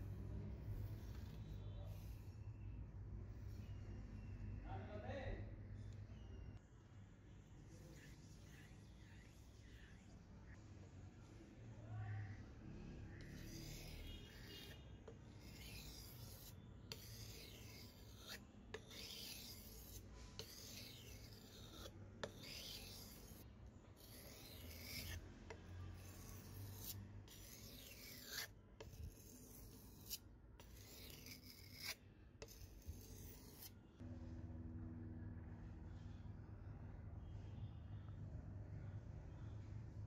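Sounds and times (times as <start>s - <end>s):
knife scraping on whetstone: 13.2s - 14.8s, 15.4s - 23.4s, 24.0s - 25.2s, 25.9s - 33.7s.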